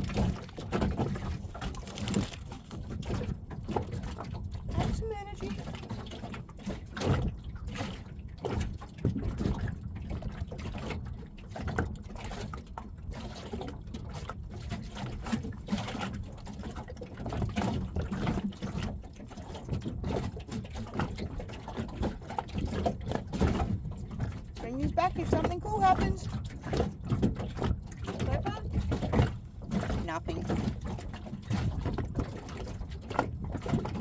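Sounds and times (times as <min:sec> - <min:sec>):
water lapping against boat hull: 0:00.0 - 0:34.0.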